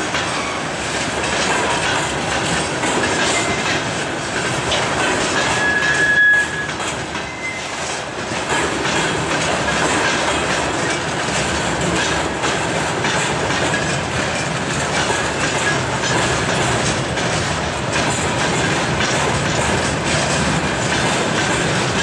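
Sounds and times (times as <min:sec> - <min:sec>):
clatter over rail joints: 0:00.0 - 0:22.0
freight train wheels rumbling: 0:00.0 - 0:22.0
wheel squeal: 0:03.3 - 0:03.8, 0:05.4 - 0:08.0.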